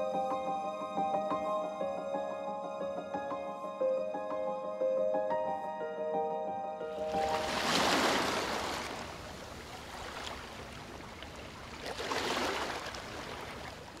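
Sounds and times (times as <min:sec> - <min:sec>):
ocean waves breaking: 0:06.9 - 0:14.0.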